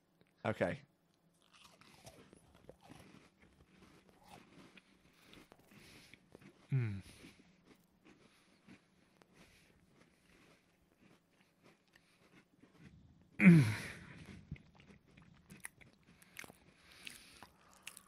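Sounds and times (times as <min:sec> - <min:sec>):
chewing and crunching biscuit: 0:01.1 - 0:18.0.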